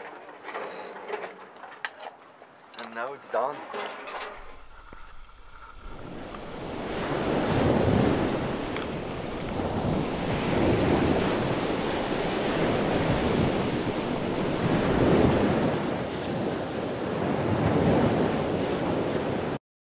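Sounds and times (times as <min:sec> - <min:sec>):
wind buffeting microphone: 0:04.2 - 0:19.6
water rushing past hull: 0:04.4 - 0:19.6.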